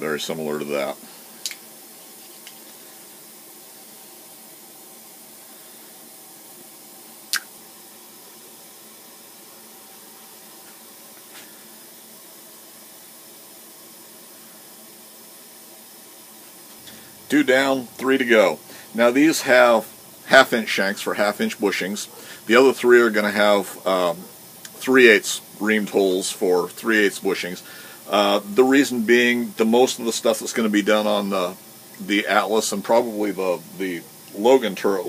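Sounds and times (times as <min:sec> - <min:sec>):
workshop background hiss: 0:00.0 - 0:35.0
sharp click: 0:07.3 - 0:07.5.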